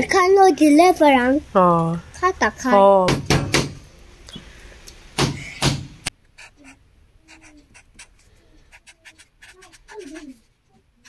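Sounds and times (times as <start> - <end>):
loud knocks: 3.1 - 3.8.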